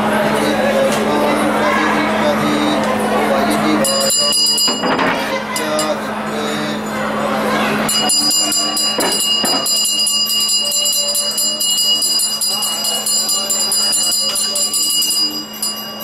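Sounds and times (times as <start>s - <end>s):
hand bell rung rapidly: 3.8s - 6.0s, 7.9s - 16.0s.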